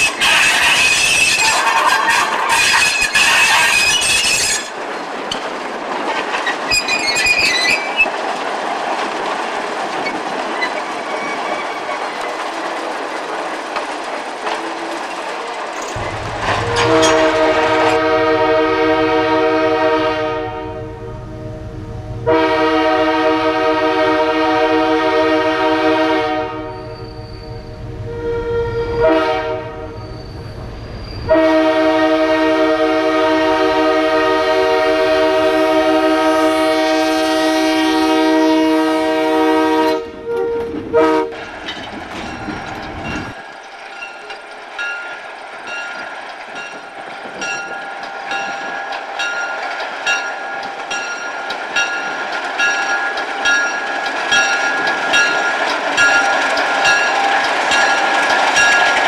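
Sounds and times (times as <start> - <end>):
train wheels clicking over rails: 0.0 - 18.2, 40.2 - 59.0
diesel locomotive engine rumbling: 0.0 - 59.0
locomotive air horn blasts: 16.2 - 30.0, 31.3 - 41.4.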